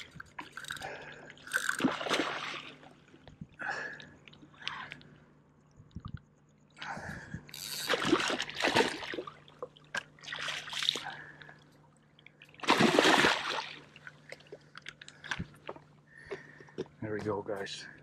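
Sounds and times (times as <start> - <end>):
fish thrashing in shallow water: 0.0 - 3.3, 7.4 - 16.6.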